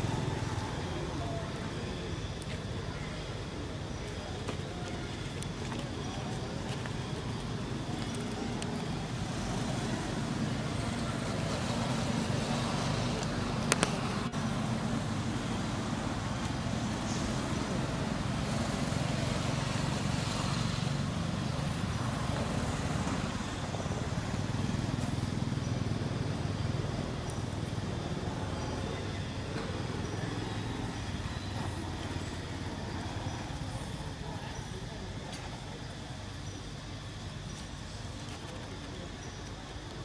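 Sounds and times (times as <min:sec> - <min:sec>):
outdoor background rumble: 0:00.0 - 0:40.0.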